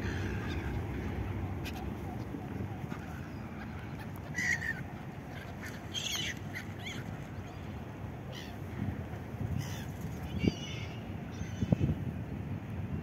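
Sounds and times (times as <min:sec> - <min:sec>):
gulls calling: 0:00.0 - 0:12.0
low background rumble: 0:00.0 - 0:12.0.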